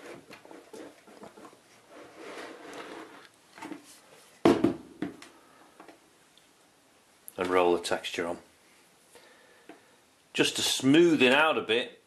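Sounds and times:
rod scraping and foil crinkling: 0.0 - 3.4.

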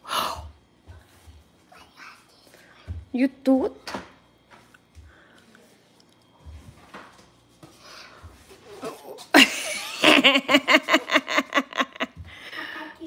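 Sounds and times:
person laughing: 9.4 - 12.7.

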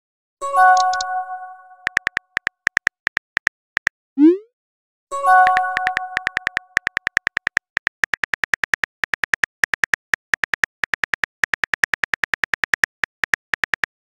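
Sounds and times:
phone keyboard typing clicks: 0.8 - 1.1, 1.8 - 3.9, 5.4 - 14.0.

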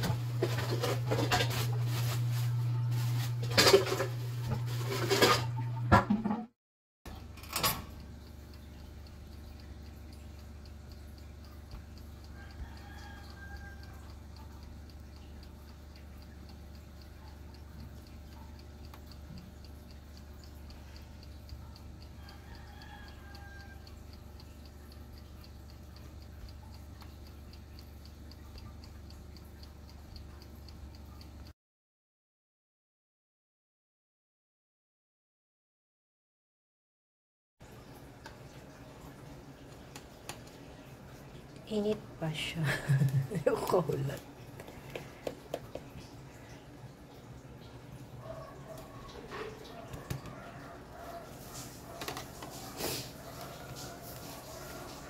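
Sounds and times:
oven humming: 0.0 - 6.2, 7.1 - 31.4, 37.6 - 55.0
distant rooster crowing: 12.2 - 14.3, 22.1 - 24.1, 48.4 - 55.0.

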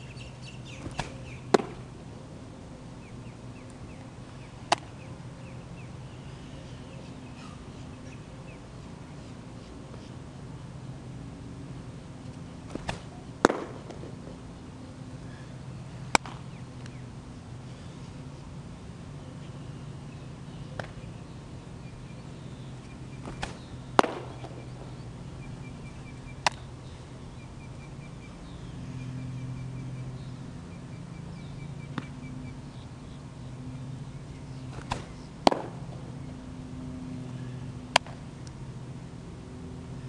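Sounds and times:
low hum: 0.0 - 40.0
ball popping into catcher's mitt: 0.8 - 1.8, 4.7 - 4.9, 12.7 - 14.1, 16.1 - 16.4, 23.2 - 24.6, 26.4 - 26.6, 34.8 - 35.8.

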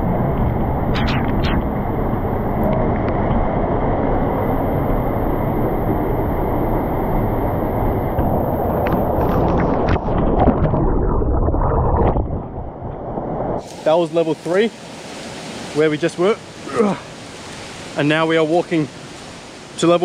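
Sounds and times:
water splashes: 8.0 - 20.0
waterfall rushing: 13.6 - 20.0.

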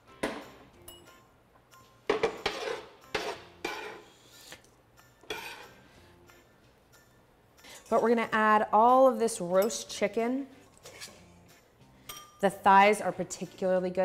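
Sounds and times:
spoon clinking against ceramic bowls: 0.8 - 1.2, 12.0 - 12.4
metal spoon scraping cutting board: 2.3 - 4.6, 5.2 - 5.8.

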